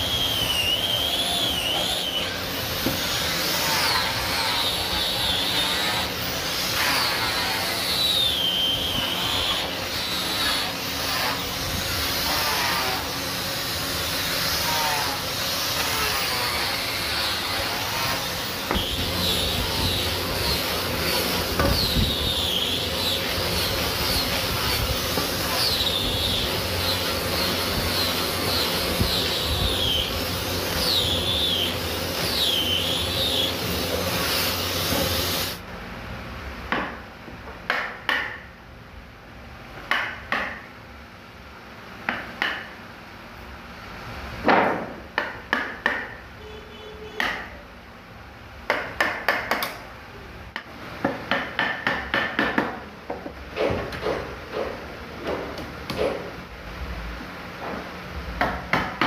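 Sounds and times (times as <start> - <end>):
angle grinder sanding wood: 0.0 - 35.6
chisel struck with a block: 37.6 - 38.5, 39.9 - 40.7, 42.1 - 42.8, 44.5 - 46.2, 47.2 - 47.6, 48.7 - 49.8, 50.6 - 56.2, 58.4 - 59.0.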